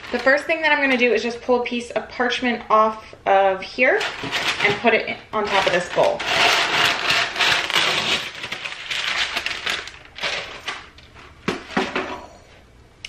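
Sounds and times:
paper crinkling and rustling: 0.0s - 1.1s, 4.0s - 11.4s
paper tearing: 5.5s - 10.9s.

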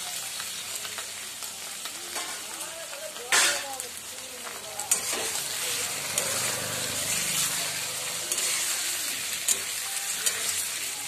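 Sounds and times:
food sizzling in hot oil: 0.0s - 11.0s
metal spatula scraping a pan: 4.8s - 11.0s.

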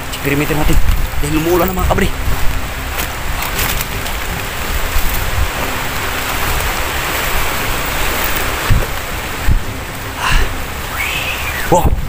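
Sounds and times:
rain falling on foliage: 0.0s - 12.0s
low thumps: 0.7s - 10.0s.

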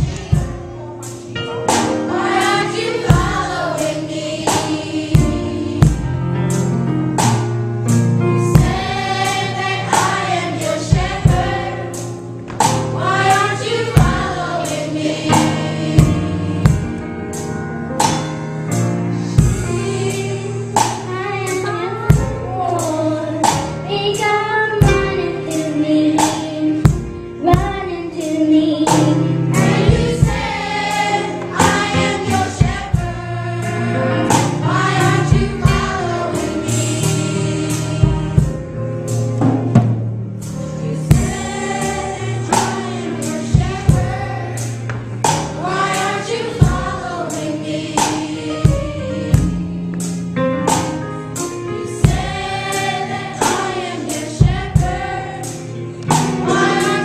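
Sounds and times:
steady beat: 0.0s - 6.6s, 8.5s - 17.0s, 29.6s - 51.0s
children's choir singing: 1.7s - 6.3s, 8.5s - 12.2s, 12.8s - 17.0s, 19.1s - 26.2s, 28.9s - 38.7s, 40.8s - 50.1s, 51.7s - 57.0s.

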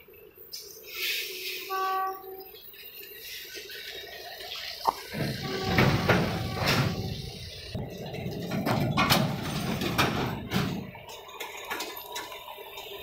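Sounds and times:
sharp knocks or clanks: 4.9s - 7.2s.

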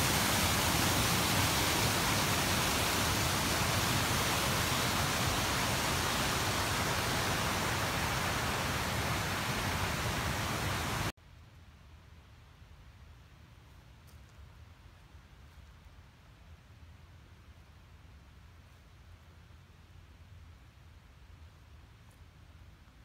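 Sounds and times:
creek rushing over rocks: 0.0s - 11.1s.

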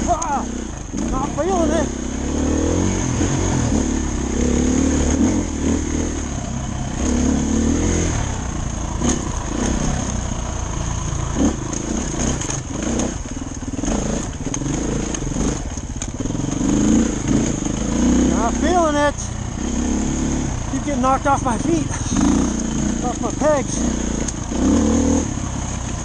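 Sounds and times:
dirt bike engine revving: 0.0s - 26.0s
sharp knocks and clatter: 11.4s - 17.8s.

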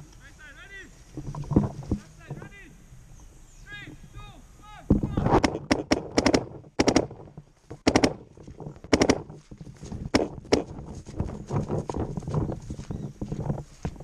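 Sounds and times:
paintball marker firing: 5.3s - 7.2s, 7.8s - 8.2s, 8.9s - 9.3s, 10.1s - 10.7s
footsteps in grass: 7.0s - 14.0s.

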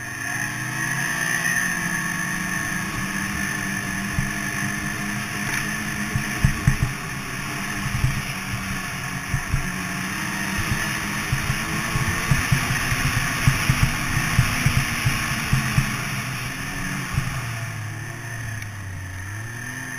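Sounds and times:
snowmobile engine running: 0.0s - 19.9s
low thumps over bumps: 4.1s - 4.6s, 6.0s - 17.5s.

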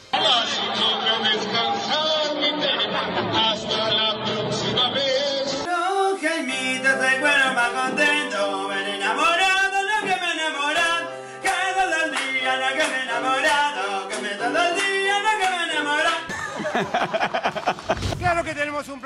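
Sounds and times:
man singing loudly: 0.2s - 16.3s.

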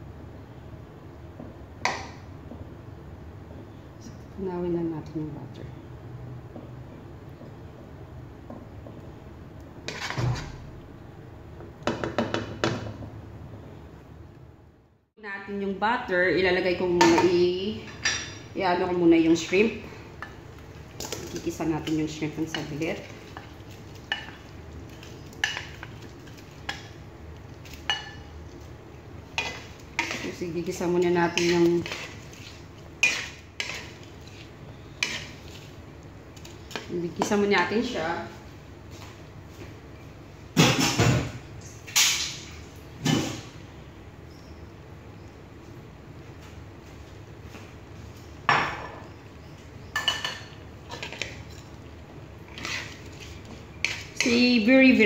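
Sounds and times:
wok and spatula clattering: 21.0s - 27.0s, 29.3s - 34.1s, 35.0s - 35.4s.

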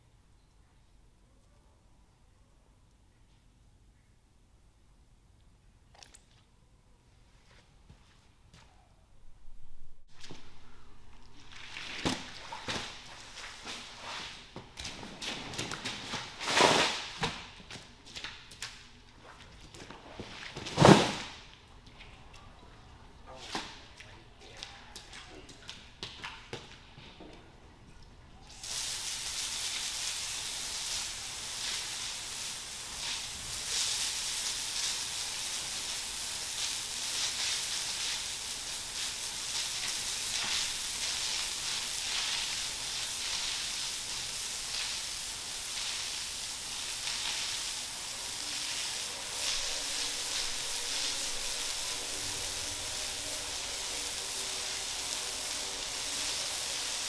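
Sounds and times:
water spraying from hose: 11.4s - 17.3s, 28.5s - 57.0s.

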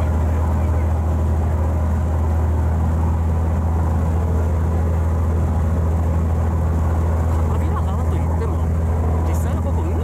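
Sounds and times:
boat engine droning: 0.0s - 10.0s.

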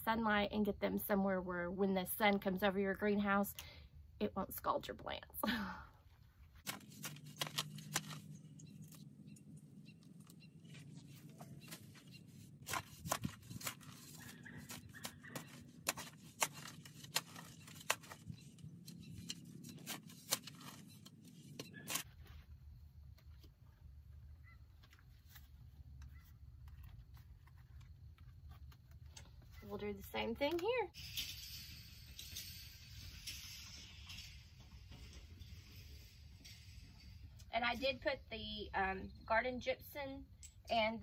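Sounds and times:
faint handling noises: 6.1s - 30.8s.

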